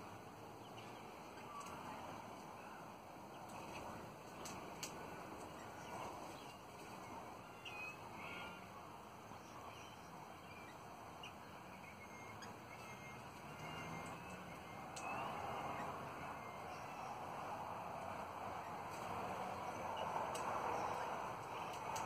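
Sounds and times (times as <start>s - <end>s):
low background noise: 0.0s - 22.0s
parrots chirping: 9.4s - 17.6s.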